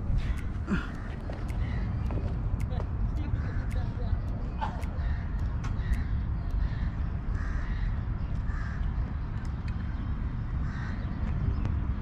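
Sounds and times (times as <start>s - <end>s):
wind rumble on microphone: 0.0s - 12.0s
crow cawing: 4.6s - 8.9s, 10.6s - 11.1s.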